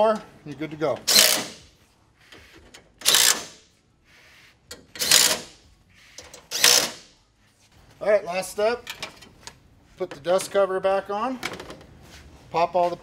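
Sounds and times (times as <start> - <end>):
impact driver bursts: 1.1 - 1.7, 3.0 - 3.6, 5.0 - 5.6, 6.5 - 7.1.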